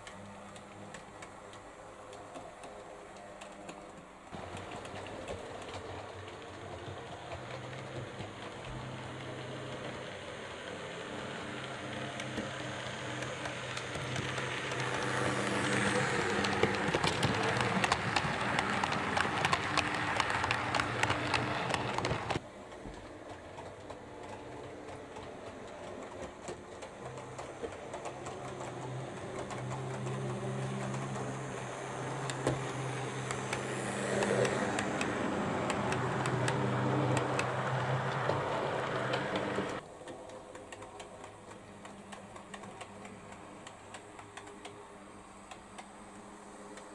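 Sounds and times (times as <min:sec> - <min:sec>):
model train wheels clicking: 0:00.0 - 0:46.9
model train motor whirring: 0:04.4 - 0:22.4, 0:25.9 - 0:41.6.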